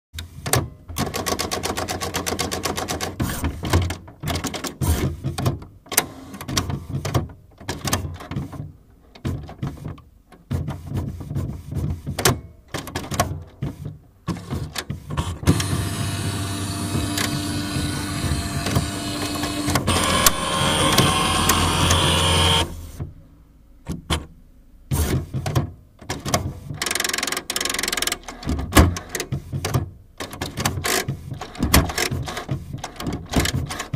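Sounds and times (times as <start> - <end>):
inkjet printer whirring and clicking: 15.2 - 23.0.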